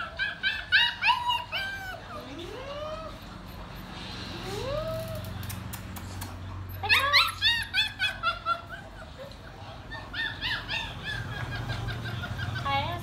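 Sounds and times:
dog whining: 0:00.0 - 0:03.4, 0:06.7 - 0:12.0
dog yips and whimpers: 0:00.0 - 0:03.4, 0:06.7 - 0:12.6.

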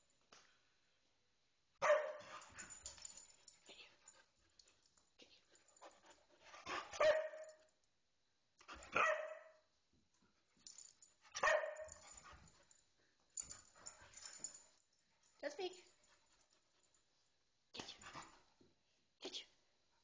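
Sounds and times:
dog barking: 0:01.8 - 0:02.3, 0:07.0 - 0:07.5, 0:08.9 - 0:09.6, 0:11.4 - 0:11.9
paws tapping and scuffling: 0:10.6 - 0:17.0.

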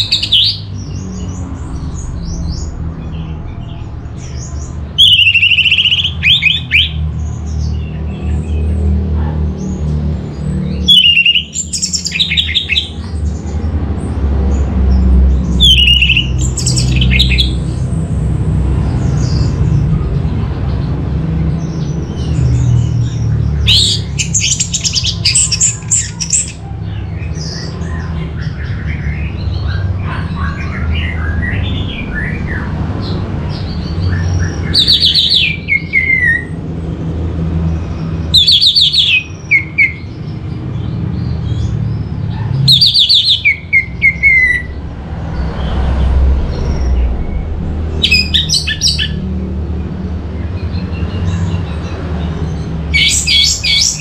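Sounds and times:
thrush singing whistled notes: 0:02.0 - 0:07.0, 0:10.7 - 0:12.9, 0:15.6 - 0:17.6, 0:42.7 - 0:44.8, 0:45.4 - 0:49.3
soft bird twittering: 0:37.7 - 0:49.4
steady low hum: 0:44.7 - 0:50.5.

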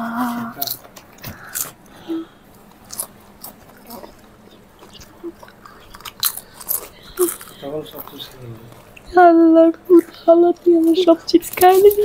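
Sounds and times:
chips crunching when chewed: 0:00.6 - 0:01.8, 0:02.7 - 0:08.9.

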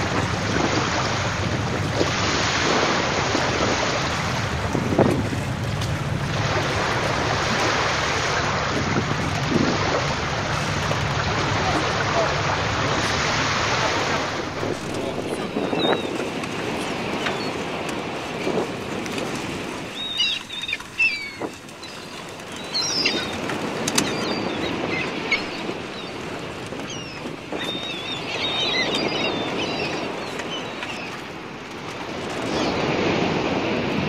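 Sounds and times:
lapping lake water: 0:00.0 - 0:34.0
wind on microphone: 0:00.0 - 0:34.0.

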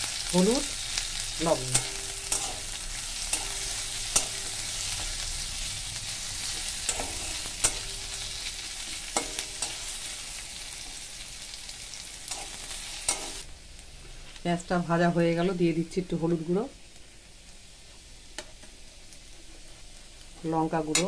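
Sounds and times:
onions sizzling in hot oil: 0:00.0 - 0:21.0
metal spatula scraping pan: 0:01.6 - 0:10.3.

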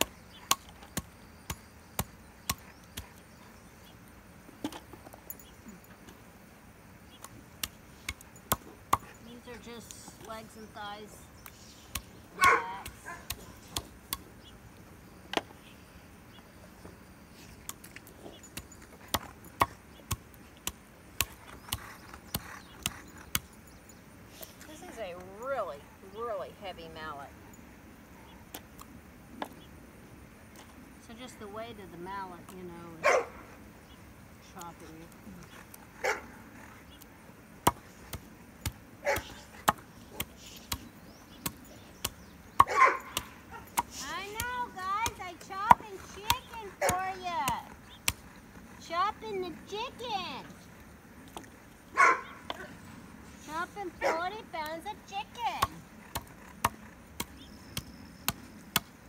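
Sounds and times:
chopper chopping bones on wood: 0:00.5 - 0:03.0, 0:37.6 - 0:48.2, 0:55.3 - 0:58.9
dog barking: 0:12.4 - 0:13.6, 0:33.0 - 0:33.4, 0:36.0 - 0:36.3, 0:39.0 - 0:39.5, 0:42.6 - 0:43.7, 0:52.0 - 0:52.7, 0:54.0 - 0:54.2.

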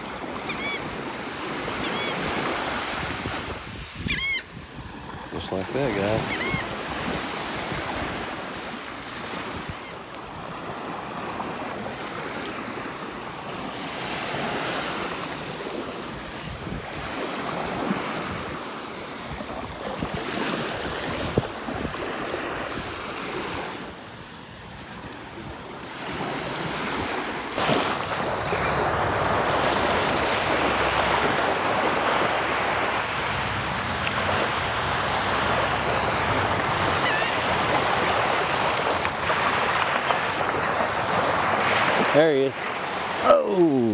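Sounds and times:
surf washing on sandy beach: 0:00.0 - 0:43.9
wind buffeting microphone: 0:15.6 - 0:18.6, 0:19.2 - 0:23.0, 0:26.9 - 0:42.1.

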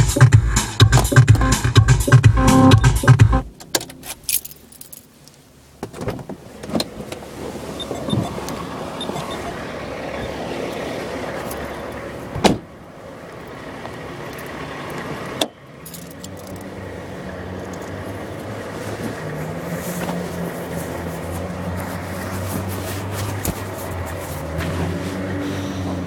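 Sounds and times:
outdoor traffic hum: 0:00.0 - 0:26.0
keys jangling: 0:04.0 - 0:05.1, 0:15.8 - 0:16.7
car door slamming: 0:05.8 - 0:07.2, 0:12.3 - 0:12.8.

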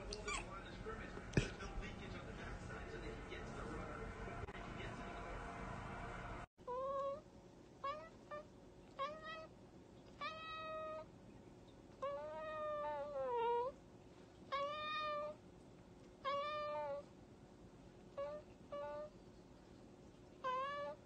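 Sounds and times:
cat meowing: 0:07.8 - 0:09.5, 0:10.2 - 0:11.1, 0:14.5 - 0:15.4, 0:16.2 - 0:17.1, 0:18.2 - 0:19.1, 0:20.4 - 0:21.0.

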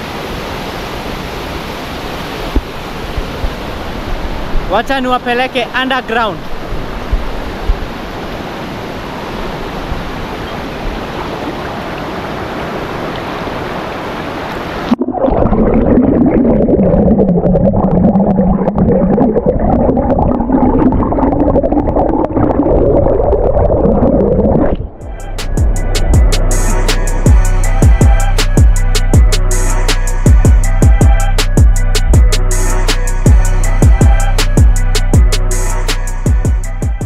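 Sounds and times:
rushing river water: 0:00.0 - 0:15.6
muffled underwater gurgling: 0:14.9 - 0:25.0.

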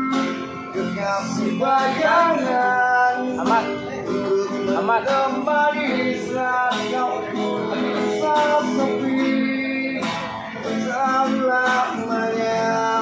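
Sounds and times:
acoustic guitar chords: 0:00.0 - 0:13.0
man singing a pop ballad: 0:00.0 - 0:13.0.

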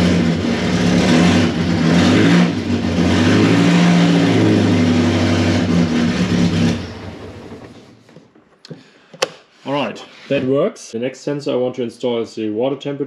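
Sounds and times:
car engine revving: 0:00.0 - 0:07.9.

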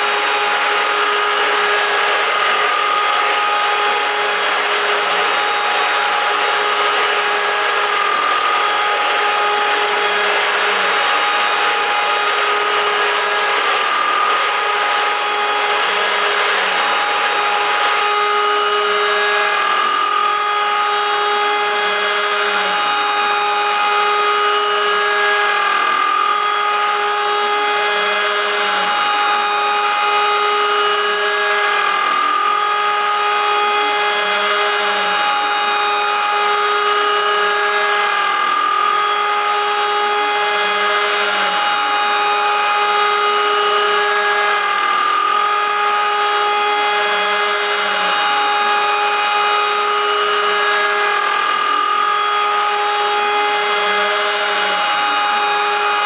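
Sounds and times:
router spindle milling aluminium: 0:00.0 - 0:56.0.

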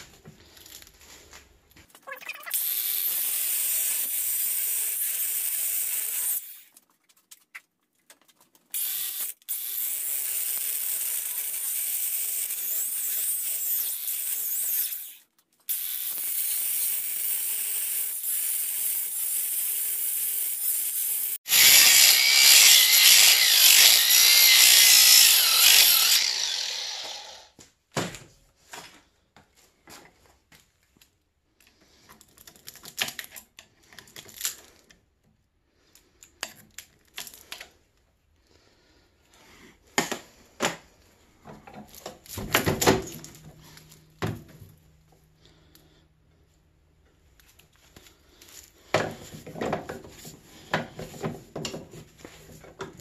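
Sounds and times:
angle grinder cutting metal: 0:02.5 - 0:06.7, 0:08.8 - 0:27.6.

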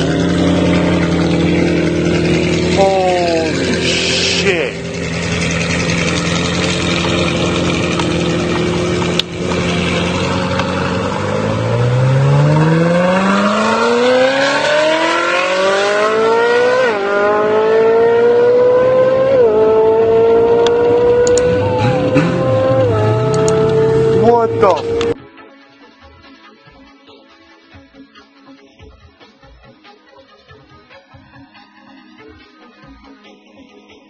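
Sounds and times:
sports car engine accelerating: 0:00.0 - 0:25.2.

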